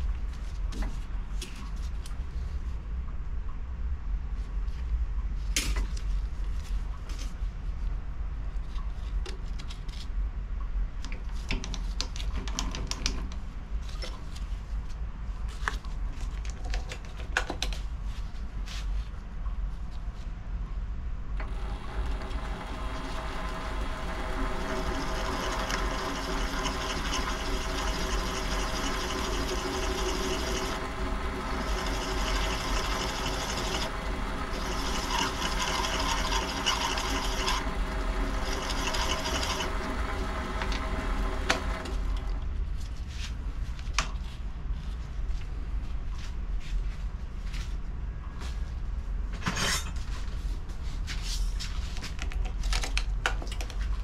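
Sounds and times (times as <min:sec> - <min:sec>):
lathe whining: 0:21.4 - 0:42.4.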